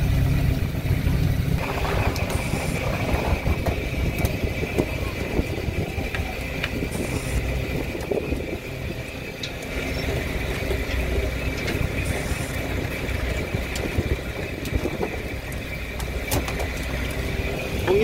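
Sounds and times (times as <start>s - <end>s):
boat engine low rumble: 0.0s - 18.0s
constant high machinery whine: 0.0s - 18.0s.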